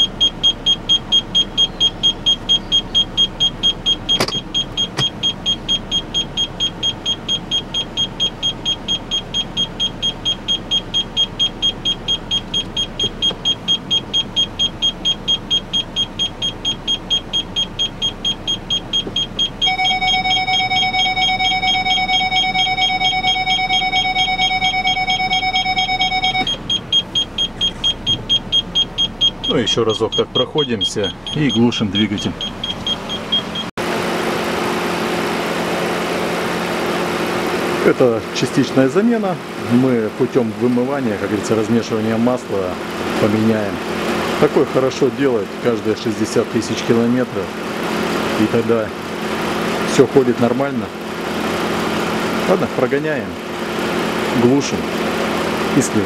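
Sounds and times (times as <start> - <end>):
rapid electronic warning chime: 0.0 - 33.7.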